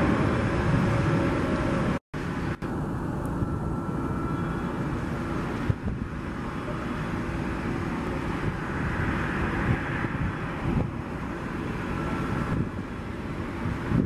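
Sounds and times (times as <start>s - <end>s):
jet engines: 0.0s - 14.0s
wind: 0.0s - 14.0s.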